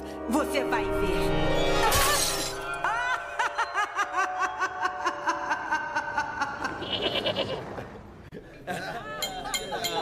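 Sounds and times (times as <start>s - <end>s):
woman laughing hard: 2.8s - 7.8s.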